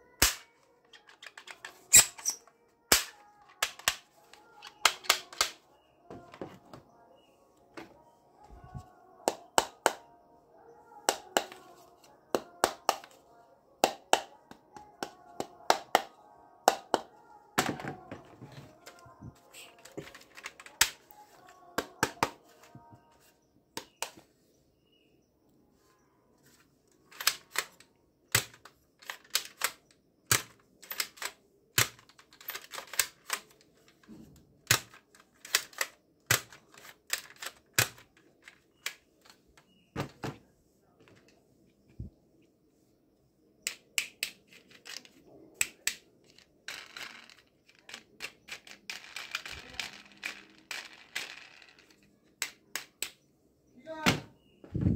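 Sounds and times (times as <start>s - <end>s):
plastic toy blaster clicks: 0.2s - 4.0s, 27.1s - 33.6s, 34.7s - 38.0s.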